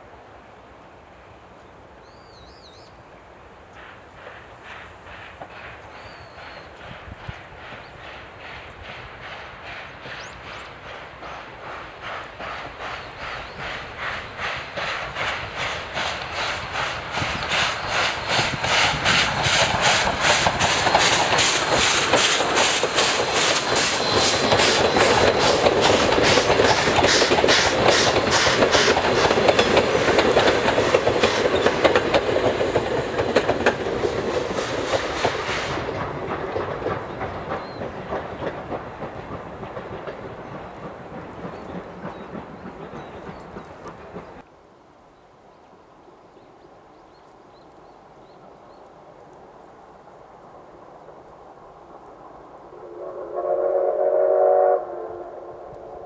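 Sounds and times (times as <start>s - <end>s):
train rumble: 0.0s - 56.0s
train wheels clattering on rails: 3.7s - 44.5s.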